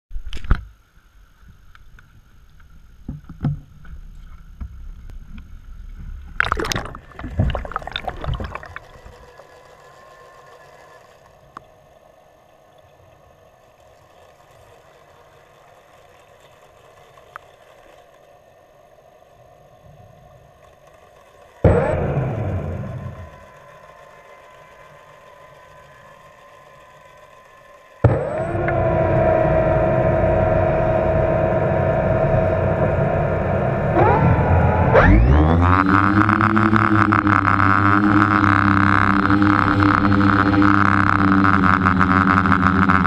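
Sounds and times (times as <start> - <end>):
water splashing underwater: 6.3 - 9.3
rush of water: 6.4 - 9.3
pool cleaner motor hum: 6.4 - 43.0.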